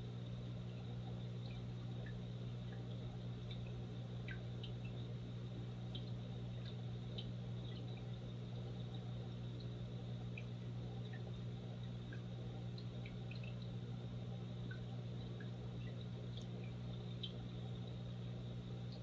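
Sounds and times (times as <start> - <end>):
aquarium filter humming: 0.0 - 19.0.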